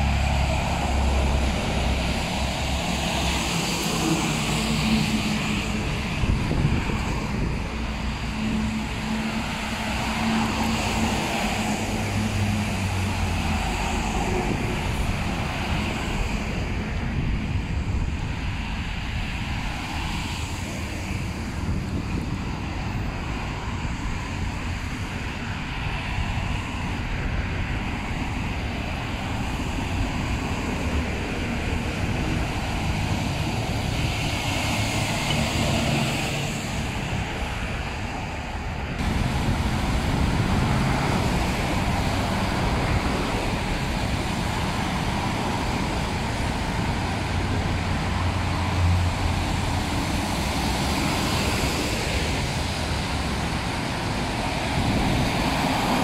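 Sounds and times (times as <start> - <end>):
tyre hiss on wet road: 0.0 - 5.8, 6.4 - 16.6, 28.6 - 56.0
truck passing close: 0.0 - 18.1, 27.3 - 56.0
car engines: 0.0 - 56.0.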